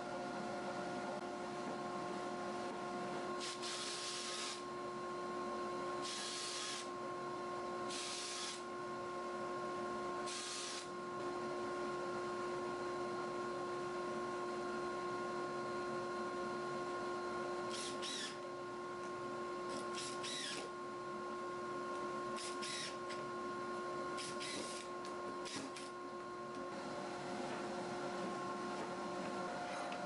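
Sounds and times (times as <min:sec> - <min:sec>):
cordless drill whining: 0:03.4 - 0:04.6, 0:06.0 - 0:06.9, 0:07.9 - 0:08.6, 0:17.7 - 0:18.4, 0:19.7 - 0:20.7, 0:22.4 - 0:23.1, 0:24.2 - 0:25.9.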